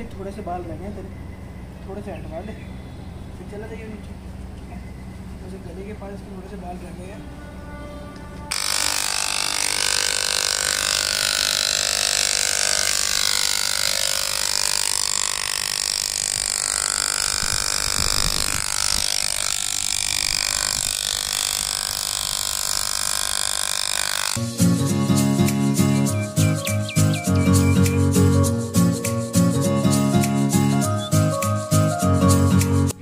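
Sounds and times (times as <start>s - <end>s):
electric hair clipper buzzing: 8.5s - 24.5s.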